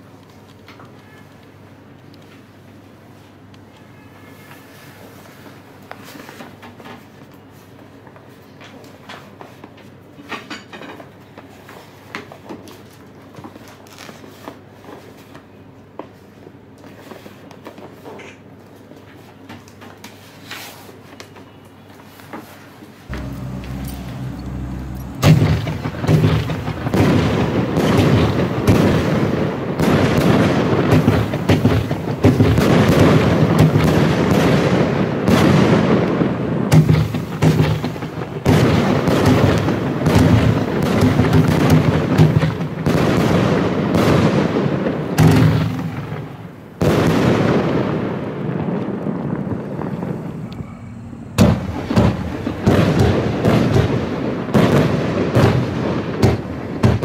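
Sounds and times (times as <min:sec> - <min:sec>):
firework shots and bursts: 0:23.1 - 0:57.0.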